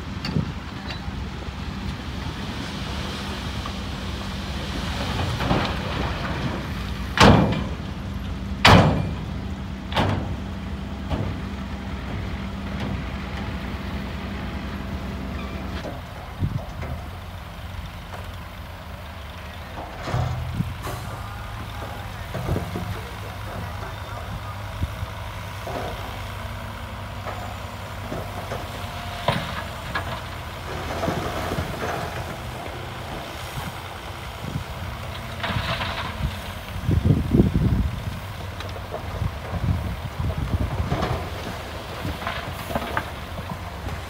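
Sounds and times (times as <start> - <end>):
diesel truck engines running: 0.0 - 44.0.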